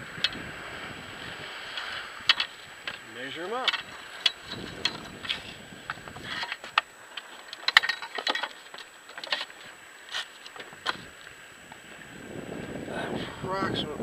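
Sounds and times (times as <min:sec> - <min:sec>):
fish and fishing gear handled: 0:01.4 - 0:12.0.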